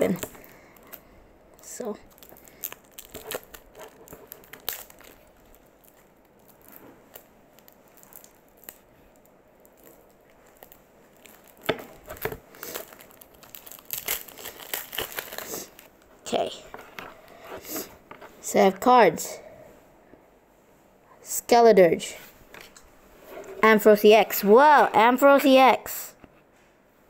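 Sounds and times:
plastic wrapping crinkling: 0.0s - 18.4s.

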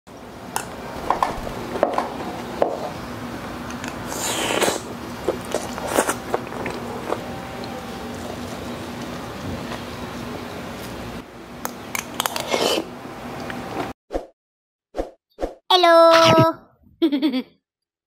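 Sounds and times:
slurping: 3.8s - 9.1s, 12.2s - 12.9s.

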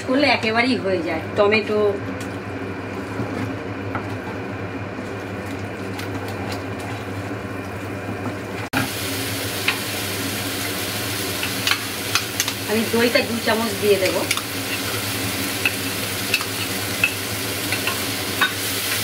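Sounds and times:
spice paste sizzling in pan: 8.8s - 19.0s.

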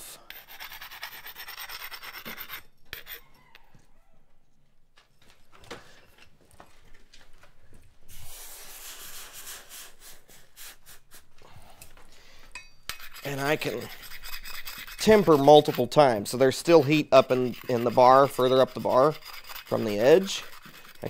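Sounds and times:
block scraping steel bar: 0.3s - 3.4s, 12.6s - 21.0s.

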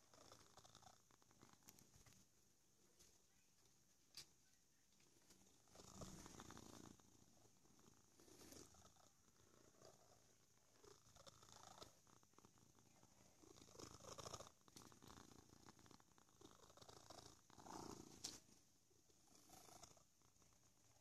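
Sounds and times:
cat purring: 0.0s - 2.3s, 5.1s - 21.0s.

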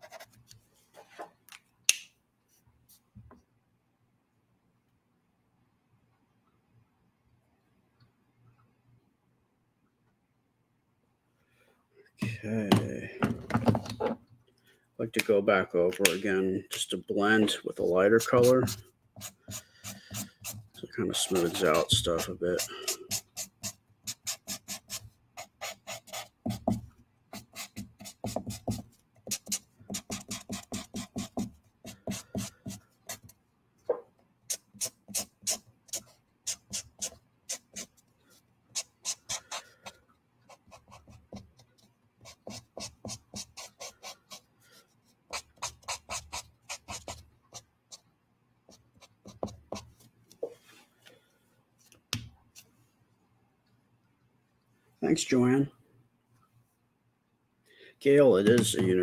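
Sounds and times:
marker rubbing on paper: 17.8s - 33.3s, 34.5s - 38.0s, 38.7s - 39.7s, 40.5s - 48.0s.

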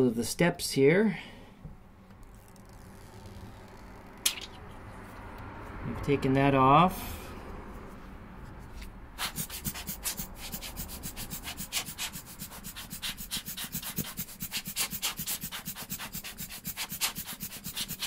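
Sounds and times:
rubber blower bulb puffing air: 9.2s - 18.0s.

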